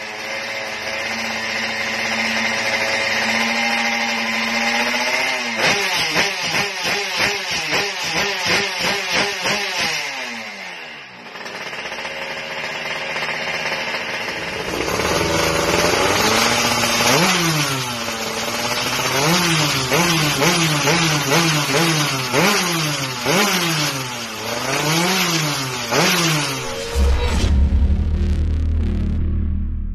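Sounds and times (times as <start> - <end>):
two-stroke engine revving: 0.0 - 27.1
second motorcycle engine blipped: 11.4 - 27.0.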